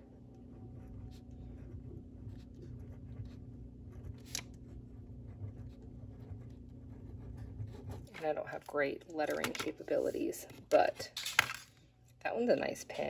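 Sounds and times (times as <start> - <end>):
steady low hum: 0.0 - 13.0
gel pen scratching on paper: 0.6 - 8.7.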